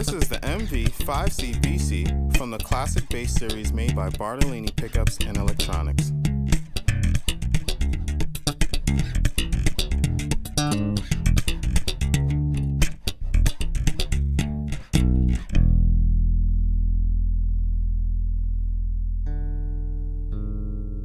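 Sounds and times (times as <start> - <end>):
electric bass plucked notes: 0.0 - 21.0.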